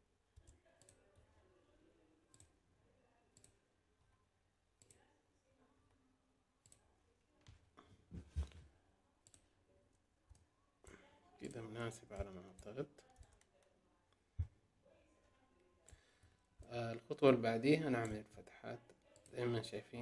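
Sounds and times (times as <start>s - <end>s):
computer mouse clicks: 0.4s - 1.3s, 2.3s - 2.6s, 3.3s - 3.6s, 4.8s - 5.1s, 6.6s - 7.6s, 9.2s - 9.5s.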